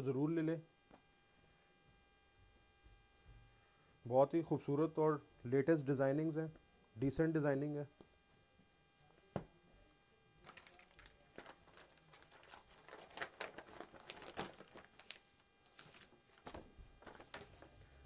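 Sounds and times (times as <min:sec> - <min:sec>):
plastic bag crinkling: 0:10.4 - 0:18.0.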